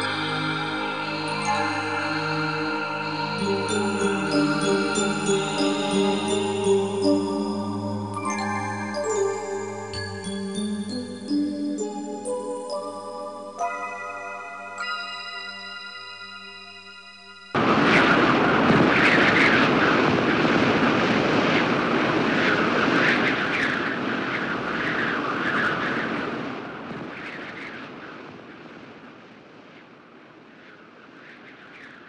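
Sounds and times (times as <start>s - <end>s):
keyboard music: 0.0s - 17.6s
rushing outdoor noise: 17.5s - 32.0s.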